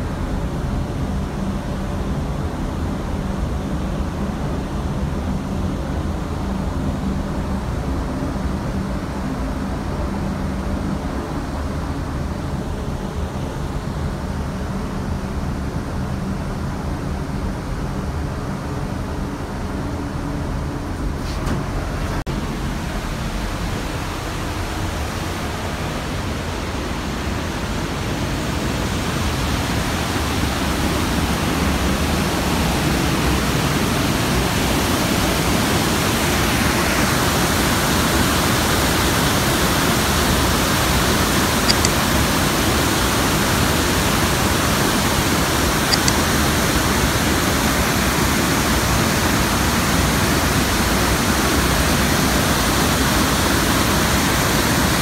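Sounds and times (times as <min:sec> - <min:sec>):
roar of waterfall: 0:21.8 - 0:55.0.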